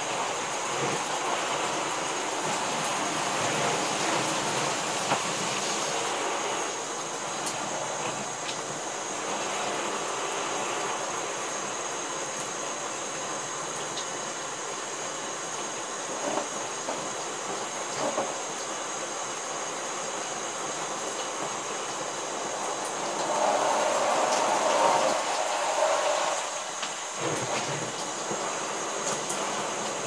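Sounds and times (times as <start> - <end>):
shower spray running: 0.0 - 30.0
water splashing: 22.3 - 30.0.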